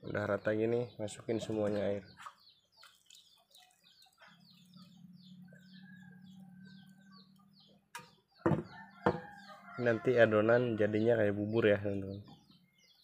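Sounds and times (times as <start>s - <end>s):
sharp knocks: 8.4s - 9.3s.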